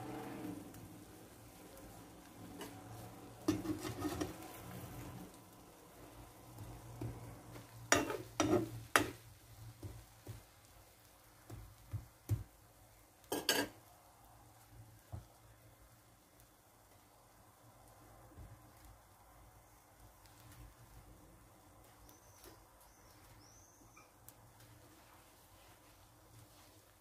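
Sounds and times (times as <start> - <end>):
eggs sizzling: 0.0 - 27.0
spoon scraping frying pan: 2.4 - 5.1, 6.6 - 9.2, 13.2 - 13.8.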